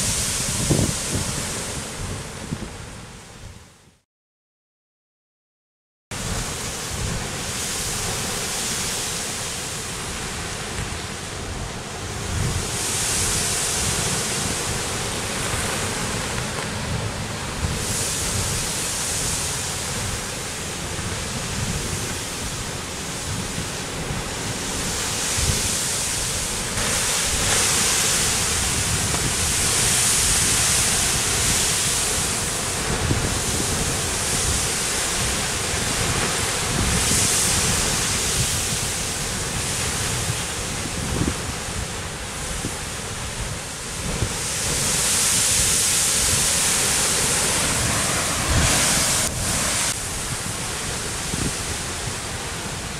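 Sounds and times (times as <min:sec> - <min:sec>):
surf roaring: 0:00.0 - 0:03.2, 0:06.2 - 0:52.9
wind on microphone: 0:00.0 - 0:03.7, 0:06.2 - 0:52.9
steam hissing: 0:12.3 - 0:52.9.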